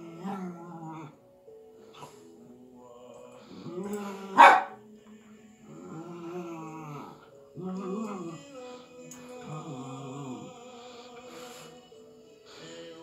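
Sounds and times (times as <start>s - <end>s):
puppy sharp bark: 4.4s - 4.8s.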